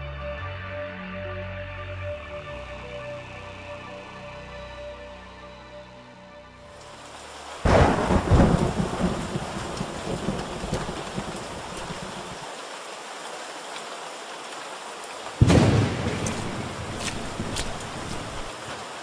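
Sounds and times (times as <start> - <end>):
steady hiss of rain: 6.6 - 19.0
thunderclap rumbling: 7.7 - 12.4, 15.4 - 18.6.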